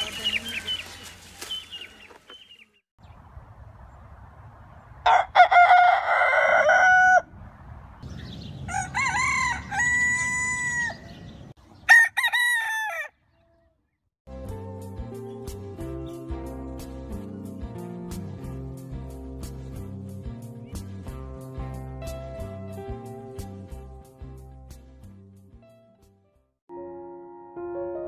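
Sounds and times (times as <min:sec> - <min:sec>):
rooster crowing: 0:05.0 - 0:07.3, 0:08.7 - 0:11.1, 0:11.9 - 0:13.2.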